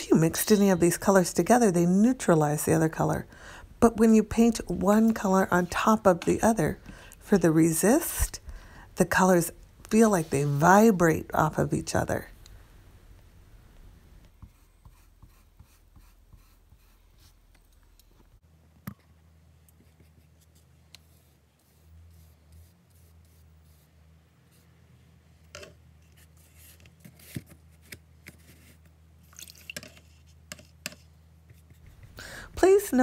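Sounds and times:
paintbrush tapping and scraping: 0:29.5 - 0:32.8.

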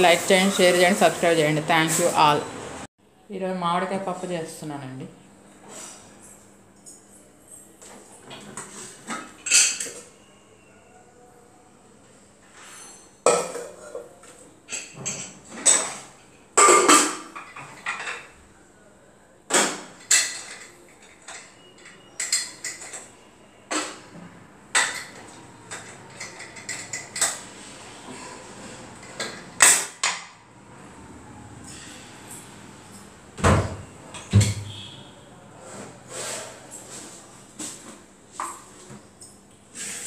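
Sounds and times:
metal pots clattering: 0:12.7 - 0:18.3.

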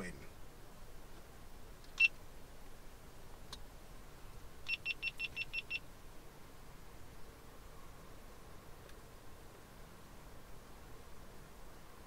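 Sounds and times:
short high-pitched warning beeps: 0:04.7 - 0:05.8.

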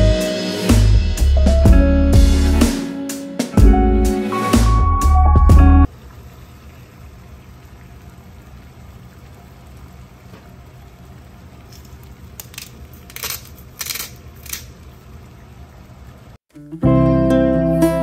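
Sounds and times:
water boiling in saucepan: 0:05.9 - 0:16.4.

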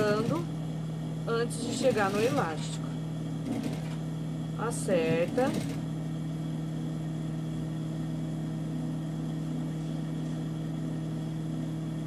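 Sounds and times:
sewing machine motor humming: 0:00.0 - 0:00.5, 0:01.5 - 0:02.8, 0:03.4 - 0:04.1, 0:04.8 - 0:05.9.

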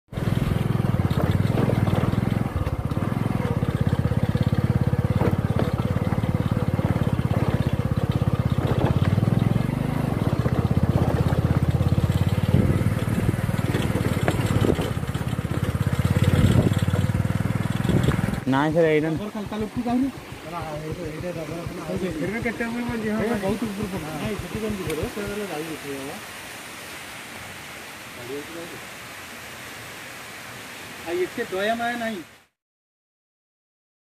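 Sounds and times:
motorcycle engine running: 0:00.1 - 0:25.7.

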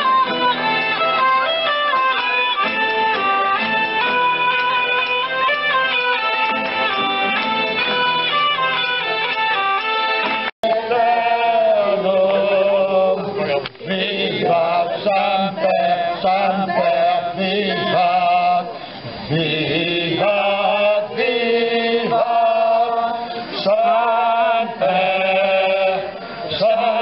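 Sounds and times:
group of voices singing: 0:10.6 - 0:27.0.

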